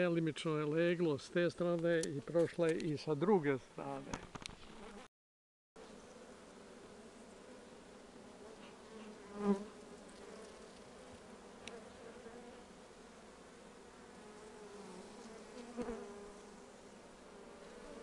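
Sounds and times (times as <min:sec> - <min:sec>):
honeybees buzzing: 0:05.8 - 0:18.0.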